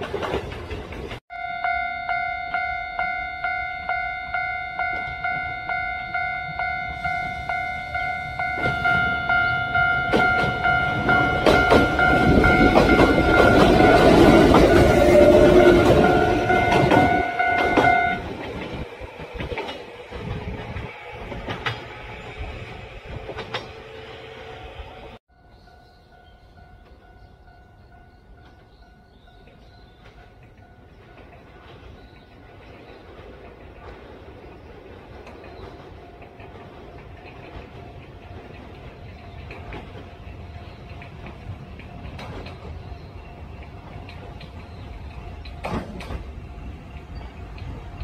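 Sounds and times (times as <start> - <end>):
wheels clacking over rail joints: 0.0 - 1.2, 4.3 - 25.2, 28.0 - 48.0
electric train passing: 0.0 - 48.0
level-crossing bell ringing: 1.3 - 18.3.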